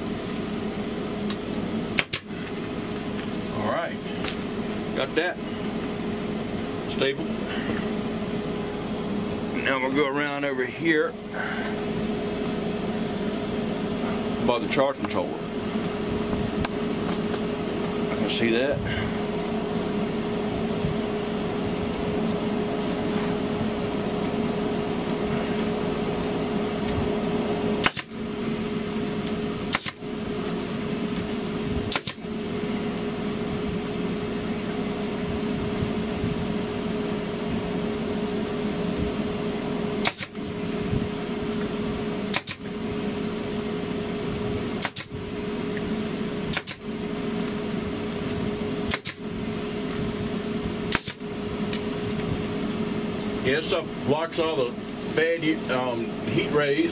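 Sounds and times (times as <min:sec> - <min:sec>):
steady machine hum: 0:00.0 - 0:56.9
pneumatic stapler shots: 0:02.0 - 0:02.3, 0:27.8 - 0:28.2, 0:29.7 - 0:30.0, 0:31.9 - 0:32.2, 0:40.0 - 0:40.4, 0:42.3 - 0:42.7, 0:44.8 - 0:45.2, 0:46.5 - 0:46.8, 0:48.9 - 0:49.2, 0:50.9 - 0:51.2.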